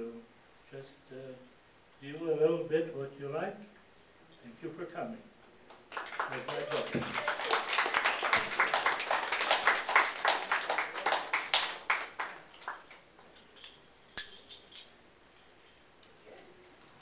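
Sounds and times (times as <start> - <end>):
audience applauding: 5.7 - 13.3.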